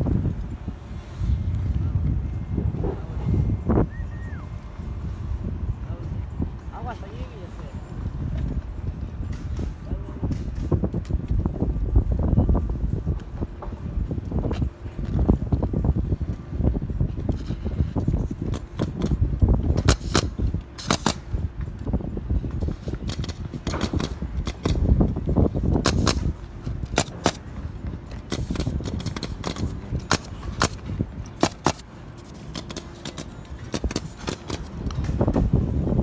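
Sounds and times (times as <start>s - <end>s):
constant low rumble: 0.0s - 36.0s
nail guns firing: 19.8s - 21.3s, 22.9s - 24.9s, 25.7s - 27.4s, 28.2s - 30.8s, 31.4s - 35.2s.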